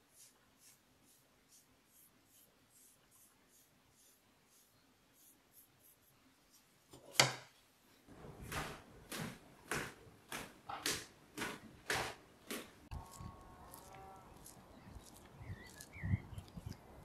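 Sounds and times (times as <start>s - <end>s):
brush strokes on clay plate: 0.0s - 6.9s, 12.8s - 17.0s
footsteps on wooden stairs: 8.1s - 12.9s.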